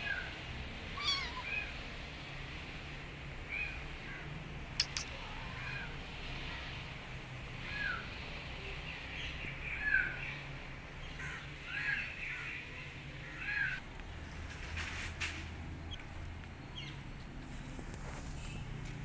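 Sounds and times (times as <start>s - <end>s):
sharp clicks: 4.8s - 5.1s.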